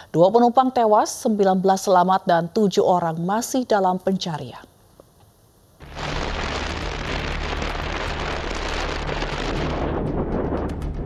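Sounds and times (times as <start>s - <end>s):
short crackles: 5.8s - 9.9s
boat engine low drone: 5.8s - 11.0s.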